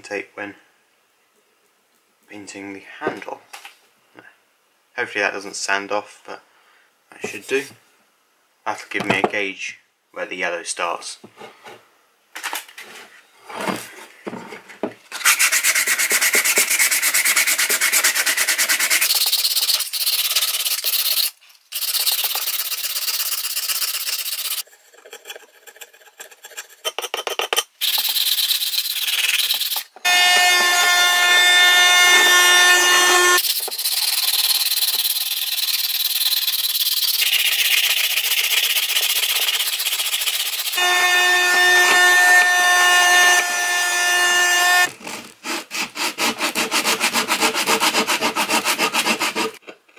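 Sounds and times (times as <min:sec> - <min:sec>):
sandpaper rubbing wood: 0:15.2 - 0:24.6, 0:27.8 - 0:49.6
steady pitched hum: 0:30.1 - 0:33.4.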